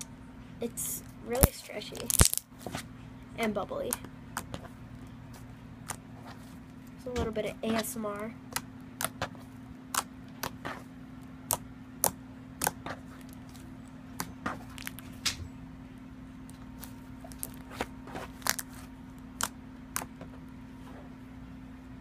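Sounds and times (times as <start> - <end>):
steady low hum: 0.0 - 22.0
slime clicking and popping: 1.4 - 2.4.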